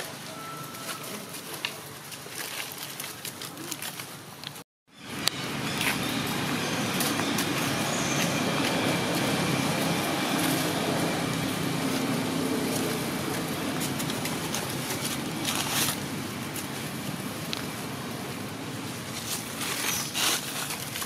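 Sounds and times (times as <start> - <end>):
road traffic: 0.0 - 21.0
vehicle running close by: 5.1 - 16.4.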